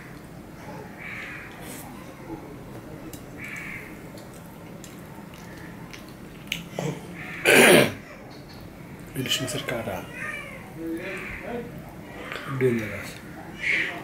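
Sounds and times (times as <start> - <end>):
faint crow caw: 0.0 - 1.6, 3.4 - 4.0, 7.2 - 7.8, 11.0 - 14.0
harsh animal call: 13.6 - 14.0.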